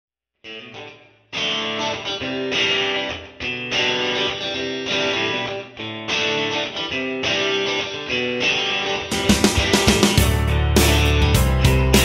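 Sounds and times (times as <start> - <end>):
strummed guitar music: 0.4 - 12.0.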